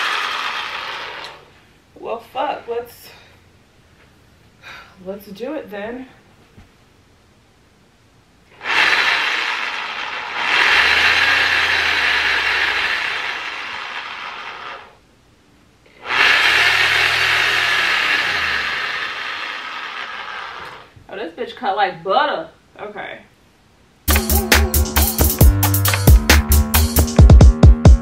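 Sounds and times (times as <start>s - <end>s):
reciprocating saw cutting foam: 0.0s - 1.5s, 8.5s - 15.0s, 15.9s - 21.0s.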